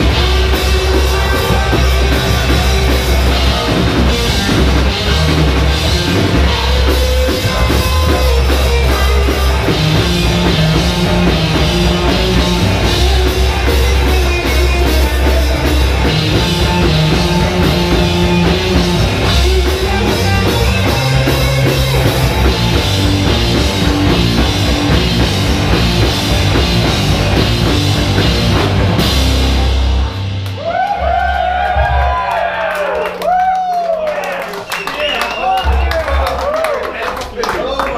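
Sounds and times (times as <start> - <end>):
heavy rock band playing: 0.0 - 32.4
crowd whooping and cheering: 30.4 - 37.9.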